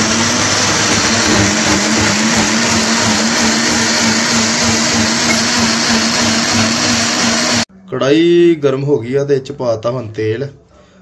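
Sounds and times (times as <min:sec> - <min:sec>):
mixer grinder motor whirring: 0:00.0 - 0:07.7.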